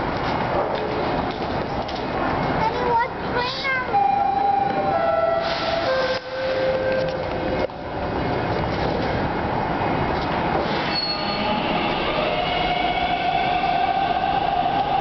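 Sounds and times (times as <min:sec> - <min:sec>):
subway train rumble: 0:00.0 - 0:15.0
train electric whine: 0:10.6 - 0:15.0.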